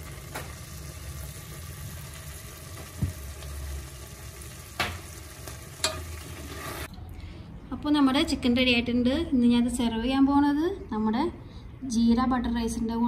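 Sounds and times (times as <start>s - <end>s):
chicken sizzling in a pot: 0.0s - 6.9s.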